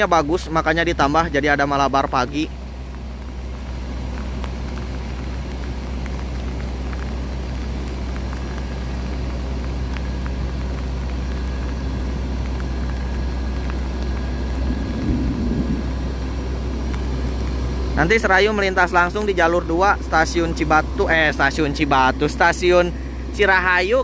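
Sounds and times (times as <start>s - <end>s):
diesel train idling: 0.0s - 24.0s
brief louder rumble: 14.6s - 16.7s.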